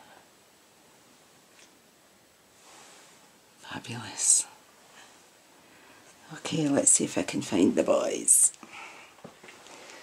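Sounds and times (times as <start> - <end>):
soft rustle: 2.4 - 6.6.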